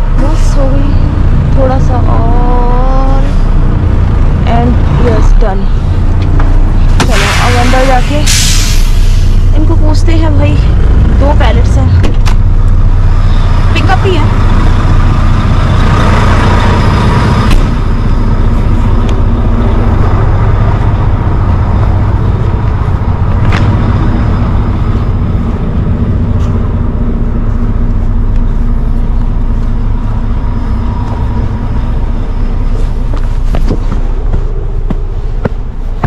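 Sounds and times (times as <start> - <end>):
diesel truck engine idling: 0.0 - 36.0.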